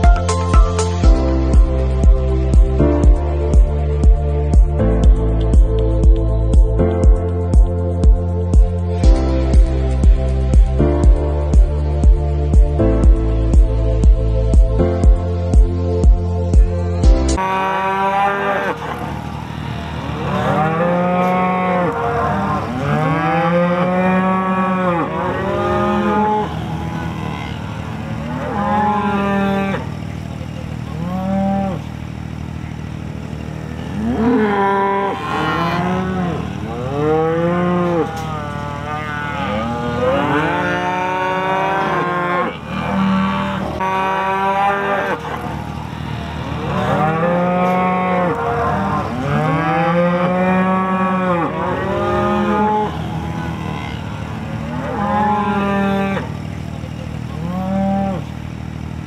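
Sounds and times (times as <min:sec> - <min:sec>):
cattle mooing: 0:17.4 - 0:32.5, 0:33.3 - 0:58.4.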